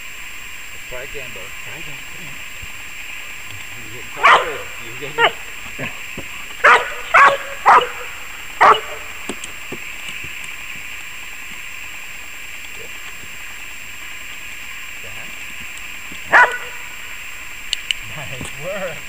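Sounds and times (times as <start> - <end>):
dog barking: 4.2 - 5.5, 6.6 - 9.1, 16.3 - 16.9.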